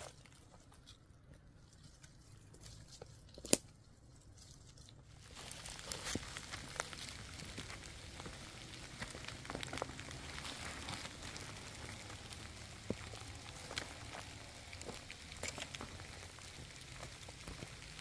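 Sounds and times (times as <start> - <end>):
dry sticks rustling: 0.0 - 18.0
footsteps crunching on dry leaves: 4.5 - 18.0.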